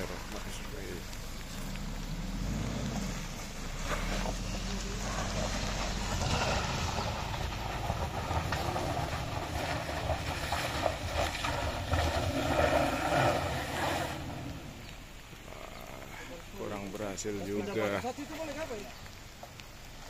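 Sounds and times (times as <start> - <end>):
suv engine revving under load: 0.2 - 16.0.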